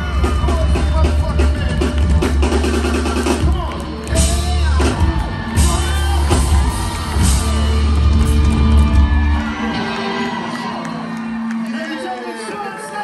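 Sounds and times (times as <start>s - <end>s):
heavy bass: 0.0s - 11.7s
live band playing loudly: 0.0s - 13.0s
voices whooping and shouting: 4.5s - 13.0s.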